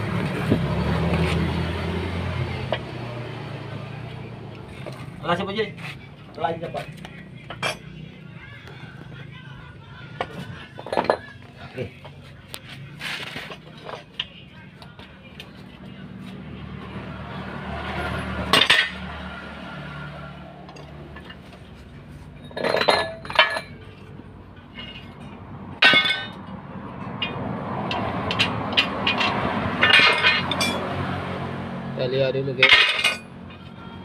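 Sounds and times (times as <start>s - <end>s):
metal leaves and tools clanking: 22.3s - 26.4s, 28.0s - 30.8s, 32.6s - 33.7s.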